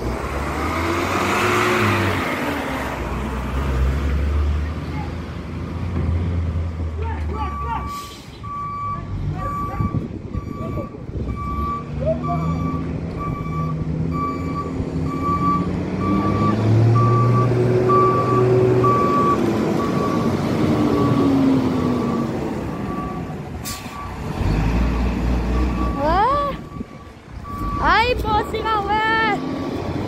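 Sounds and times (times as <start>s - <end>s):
passing truck engine rumble: 0.0s - 30.0s
diesel engine running: 4.9s - 30.0s
reversing alarm beeping: 7.4s - 20.3s, 20.9s - 24.2s, 24.9s - 29.9s.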